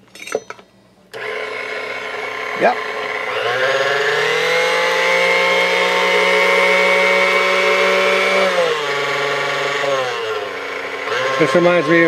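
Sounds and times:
stand mixer motor whining: 0:01.1 - 0:12.0.

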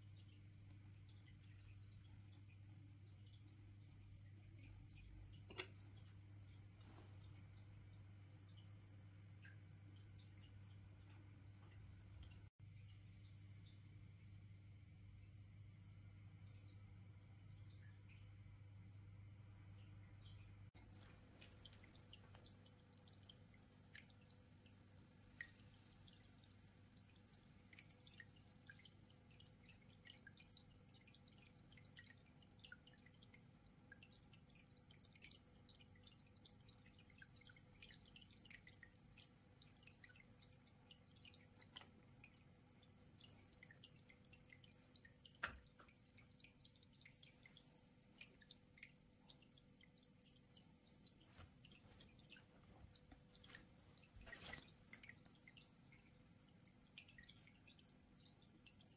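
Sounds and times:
aquarium water dripping: 0:00.0 - 0:58.9.

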